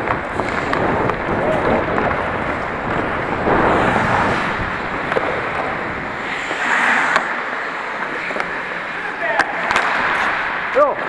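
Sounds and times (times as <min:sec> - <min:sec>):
wind on microphone: 0:00.0 - 0:07.5
skates scraping on ice: 0:00.0 - 0:11.0.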